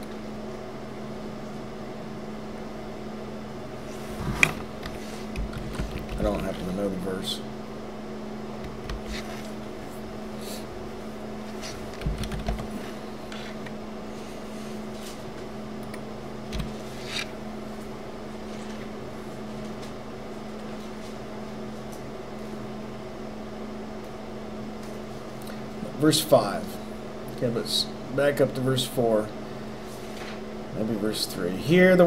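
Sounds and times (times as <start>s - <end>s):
low room hum: 0.0s - 32.0s
keyboard and mouse clicks: 4.4s - 6.2s, 11.9s - 12.7s.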